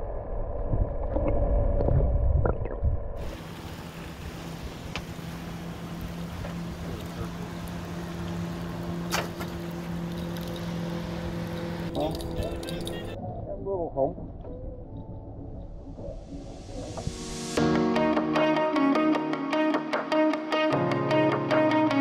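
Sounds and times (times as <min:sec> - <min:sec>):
wind and water noise: 0:00.0 - 0:17.6
boat motor humming: 0:03.2 - 0:13.2.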